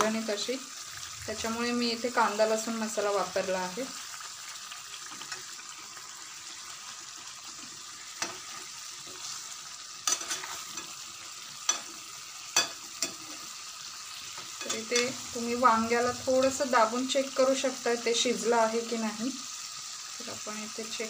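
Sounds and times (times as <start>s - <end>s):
vegetables sizzling in oil: 0.0s - 21.0s
steel spatula scraping pan: 8.2s - 11.0s, 14.2s - 16.8s.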